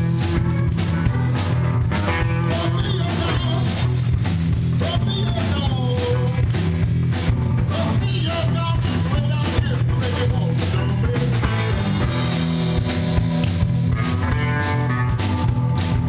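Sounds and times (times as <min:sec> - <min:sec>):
bass line: 0:00.0 - 0:16.0
blues-rock band playing: 0:00.0 - 0:16.0
drum hits: 0:00.0 - 0:16.0.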